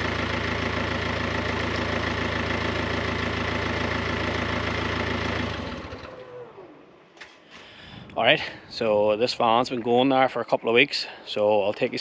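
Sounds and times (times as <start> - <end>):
diesel engine idling: 0.0 - 6.6.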